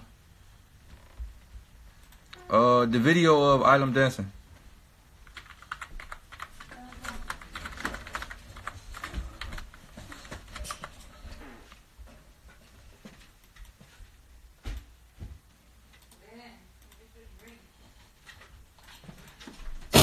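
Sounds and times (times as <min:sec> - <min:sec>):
computer keyboard typing: 0:05.2 - 0:11.2.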